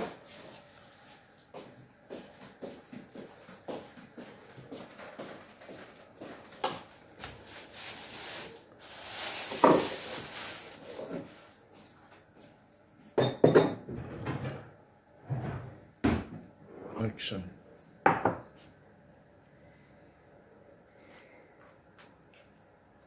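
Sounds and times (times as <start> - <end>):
dishes and cutlery clinking: 13.2 - 13.9.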